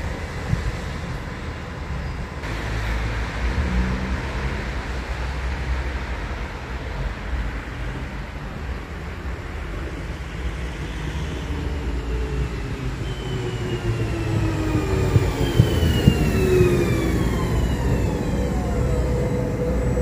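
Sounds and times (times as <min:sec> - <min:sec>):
train rumble: 0:00.0 - 0:20.0
electric whines falling in pitch: 0:13.1 - 0:20.0.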